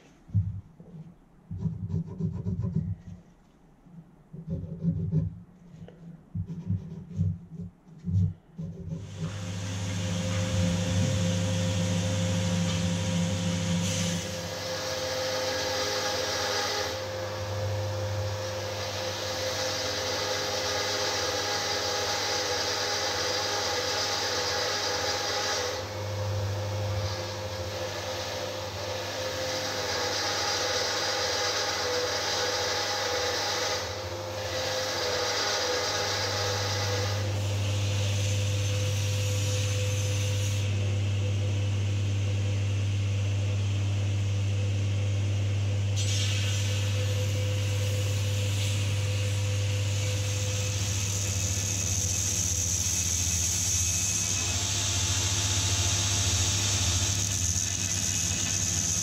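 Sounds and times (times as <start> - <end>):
scrapes and knocks: 4.3 - 9.1
belt grinder grinding steel: 56.2 - 59.0.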